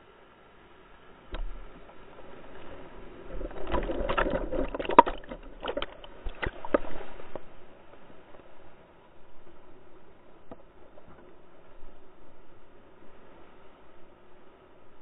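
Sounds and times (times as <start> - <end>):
rushing splashing water: 1.0 - 7.9.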